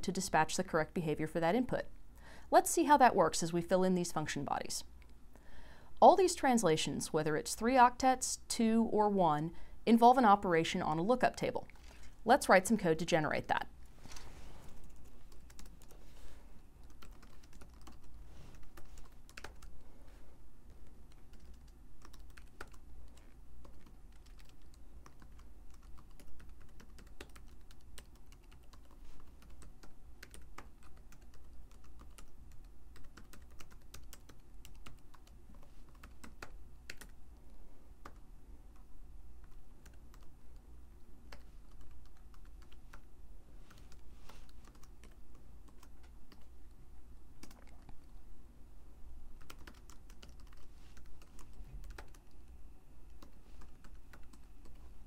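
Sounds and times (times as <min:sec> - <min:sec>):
typing on a keyboard: 0:14.8 - 0:16.0, 0:16.8 - 0:19.8, 0:20.8 - 0:37.2, 0:38.8 - 0:40.4, 0:41.3 - 0:43.1, 0:43.7 - 0:46.5, 0:47.4 - 0:48.1, 0:49.4 - 0:52.5, 0:53.1 - 0:54.9.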